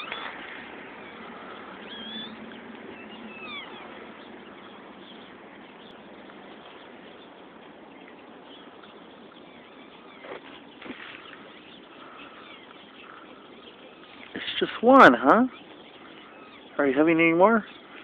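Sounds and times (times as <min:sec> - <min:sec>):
puppy squealing: 0:01.8 - 0:02.4, 0:03.0 - 0:03.9.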